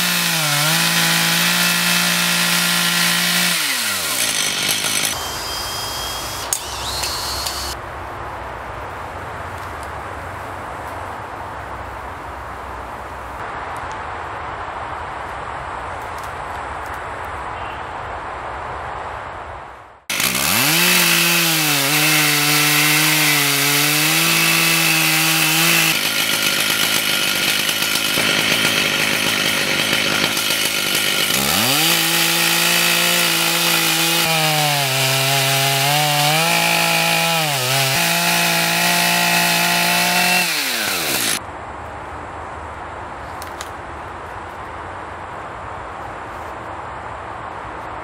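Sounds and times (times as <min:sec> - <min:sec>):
chainsaw sawing wood: 0:00.0 - 0:07.8, 0:20.1 - 0:41.4
outdoor background noise: 0:00.0 - 0:48.0.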